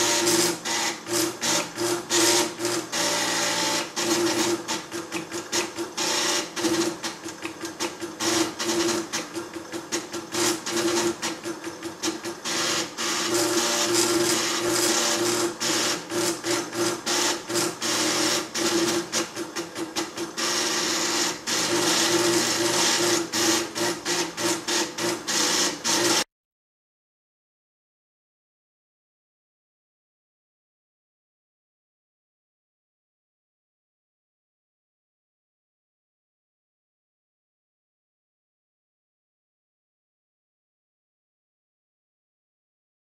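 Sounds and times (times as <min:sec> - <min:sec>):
plotter stepper motors chattering: 0:00.0 - 0:26.3.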